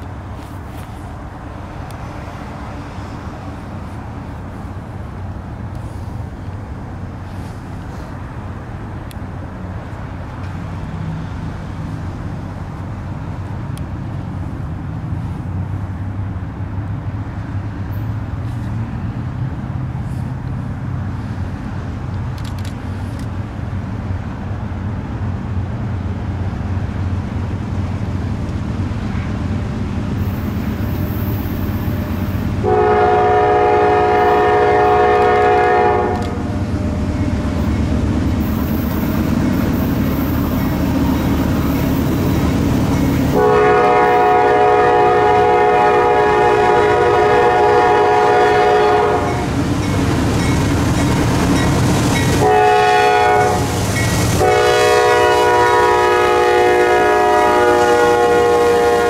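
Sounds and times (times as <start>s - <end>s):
diesel locomotive rumble: 0.0s - 59.0s
locomotive horn blast: 31.9s - 37.0s, 43.3s - 49.6s, 52.3s - 53.8s, 54.4s - 59.0s.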